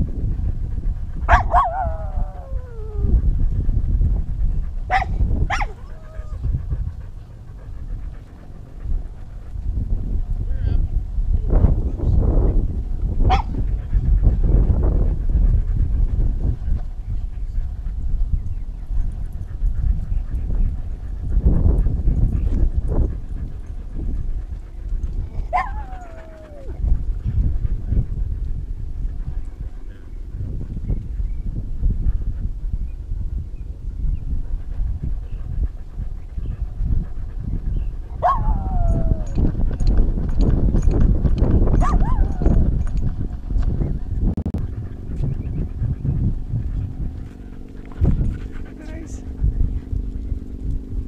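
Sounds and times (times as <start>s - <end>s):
wind on microphone: 0.0s - 51.0s
dog barking: 1.3s - 1.9s, 4.9s - 6.1s, 13.3s - 13.5s, 25.5s - 26.6s, 38.2s - 39.0s, 41.8s - 42.4s
dog howling: 1.3s - 3.3s, 5.0s - 6.6s, 25.5s - 26.8s, 38.2s - 39.6s, 41.8s - 42.7s
camera jostling rumble and knocks: 38.2s - 51.0s.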